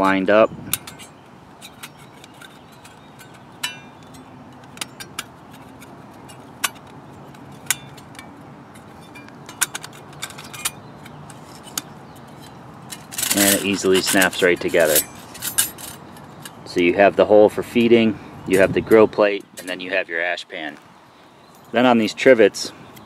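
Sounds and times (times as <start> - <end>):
short metallic ring: 0.7 - 5.3, 9.0 - 16.6
metal panels clicking together: 0.7 - 16.6.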